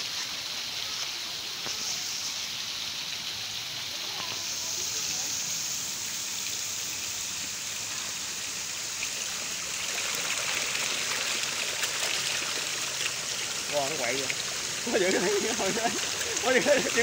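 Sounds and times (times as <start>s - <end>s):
fish splashing at water surface: 8.8s - 17.0s.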